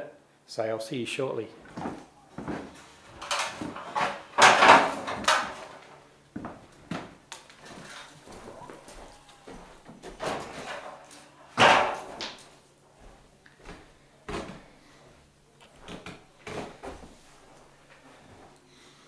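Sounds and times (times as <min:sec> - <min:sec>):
metal stepladder clattering: 0:02.6 - 0:06.0, 0:10.2 - 0:12.4.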